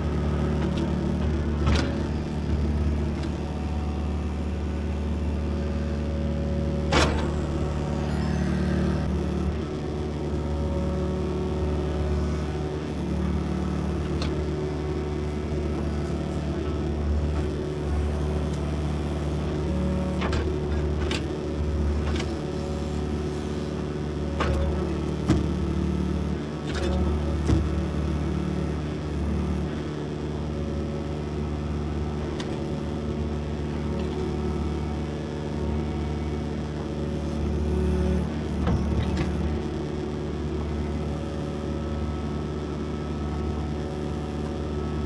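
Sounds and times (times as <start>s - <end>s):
diesel engine running: 0.0s - 45.0s.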